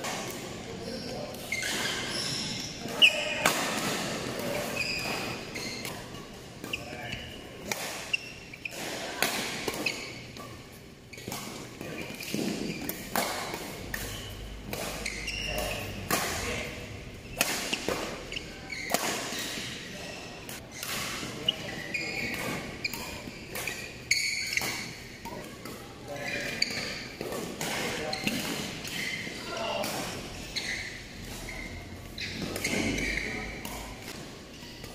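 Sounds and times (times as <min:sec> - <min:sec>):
shoes squeaking on court: 0:00.0 - 0:34.9.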